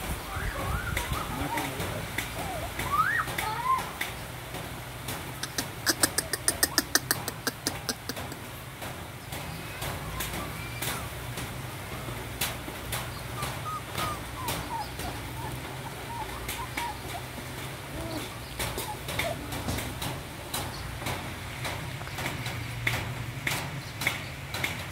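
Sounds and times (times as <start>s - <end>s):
puppies chewing and lapping: 0.3s - 24.9s.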